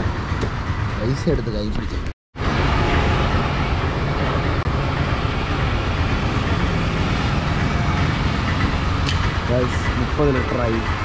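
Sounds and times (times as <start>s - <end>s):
rushing noise: 2.4s - 11.0s.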